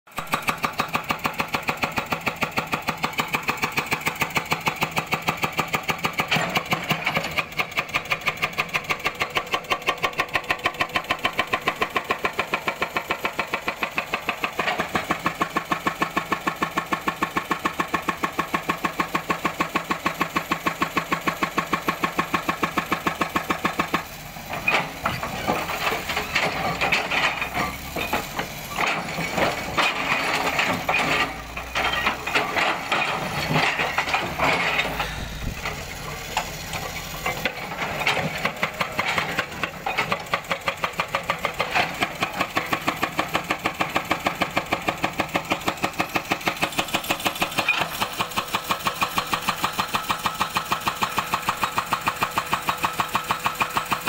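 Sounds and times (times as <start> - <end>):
hydraulic breaker hammering rock: 0.1 - 54.0
excavator engine running: 0.2 - 54.0
steel and rock clattering: 24.5 - 40.4.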